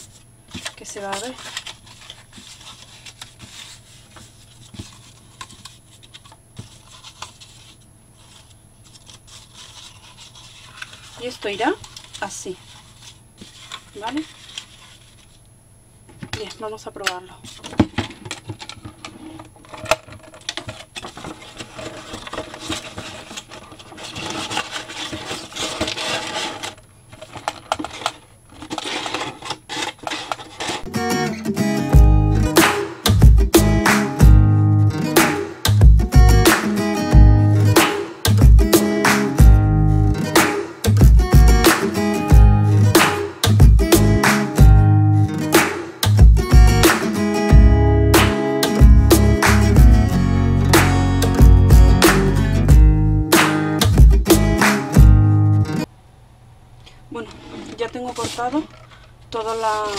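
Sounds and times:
paper scraping: 0:00.0 - 0:15.4, 0:17.4 - 0:30.9, 0:57.2 - 0:59.9.

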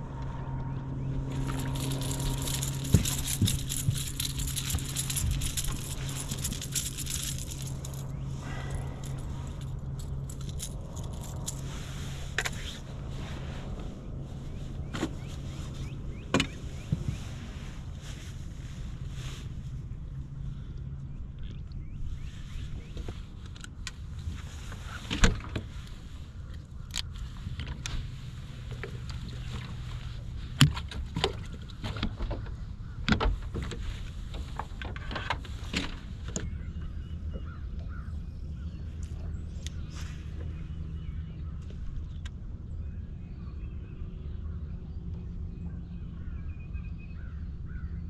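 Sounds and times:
low hum: 0:00.0 - 0:48.0
low steady rumble: 0:00.0 - 0:48.0
fishing gear clicking and knocking: 0:01.3 - 0:11.6.

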